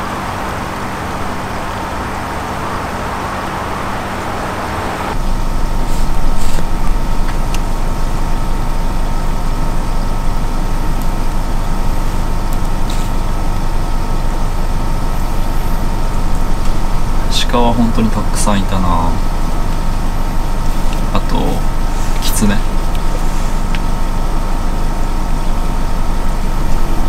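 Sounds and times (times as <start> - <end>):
faint hum: 0.0 - 27.0
motor-like rumble: 0.0 - 27.0.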